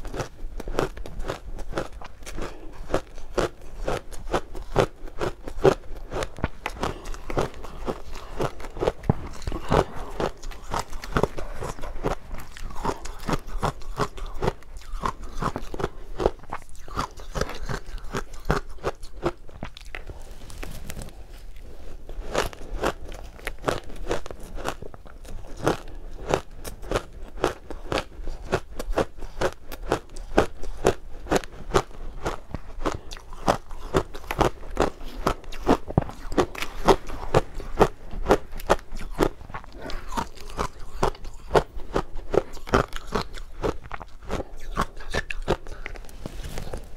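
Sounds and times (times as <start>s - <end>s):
crunching ice: 0.0s - 21.1s.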